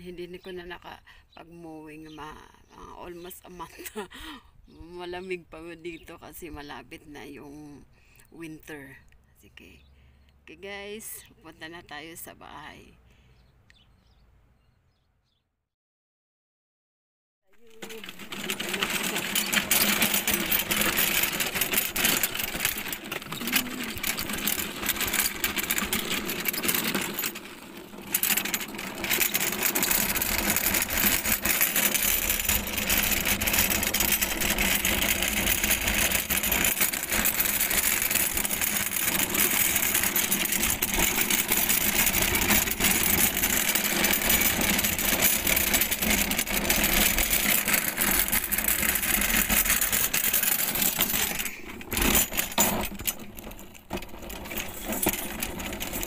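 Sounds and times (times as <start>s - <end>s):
lawn mower wheels rolling on gravel: 17.5s - 56.0s
mower deck rattling: 17.6s - 56.0s.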